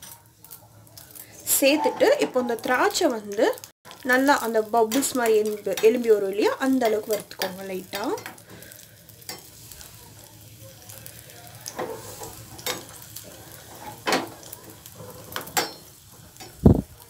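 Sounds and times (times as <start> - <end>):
raisins sizzling in pan: 0.0 - 17.0
spoon clinking and scraping pan: 1.5 - 3.1, 4.8 - 8.4, 9.2 - 9.5, 11.7 - 16.6.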